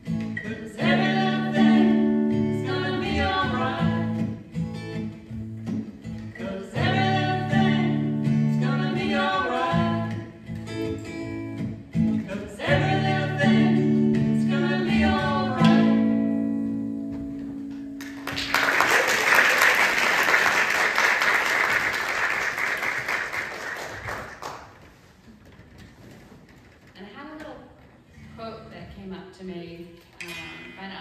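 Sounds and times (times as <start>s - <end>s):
person singing with guitar: 0.0s - 18.0s, 30.2s - 31.0s
audience applause: 18.0s - 24.8s.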